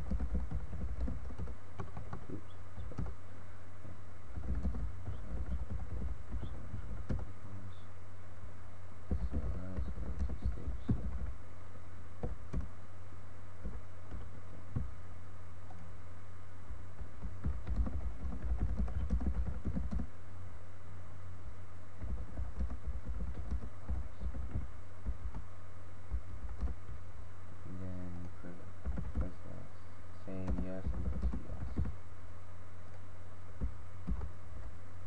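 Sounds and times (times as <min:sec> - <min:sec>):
keyboard typing: 0:00.0 - 0:03.2, 0:04.3 - 0:07.3, 0:09.1 - 0:11.3, 0:12.2 - 0:12.7, 0:17.0 - 0:20.1, 0:22.0 - 0:25.5, 0:26.1 - 0:27.0, 0:28.2 - 0:29.4, 0:30.3 - 0:32.0, 0:33.6 - 0:34.3
steady low hum: 0:00.0 - 0:35.0.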